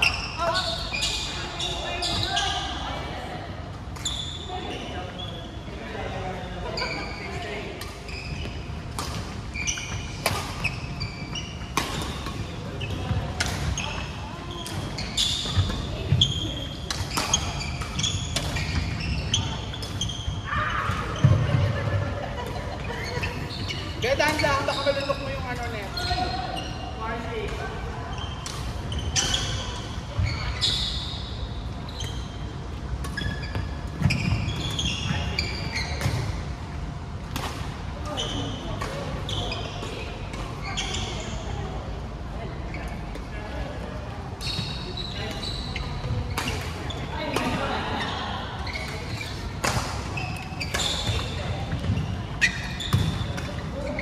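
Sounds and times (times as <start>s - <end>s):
shoes squeaking on wooden floor: 6.7s - 21.8s, 22.8s - 27.0s, 31.9s - 36.2s, 44.4s - 54.0s.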